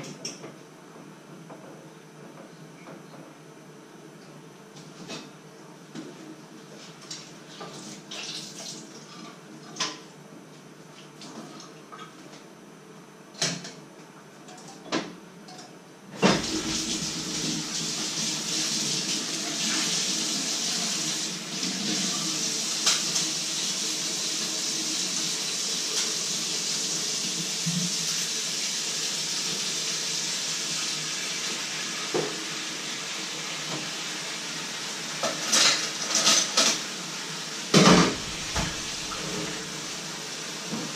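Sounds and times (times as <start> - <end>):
tap water running into metal sink: 16.2 - 28.1, 37.8 - 39.9.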